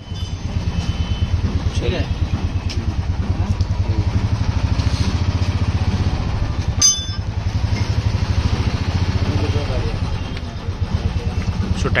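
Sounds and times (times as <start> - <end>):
motorcycle engine idling: 0.0 - 12.0
short metallic clink: 6.8 - 7.3.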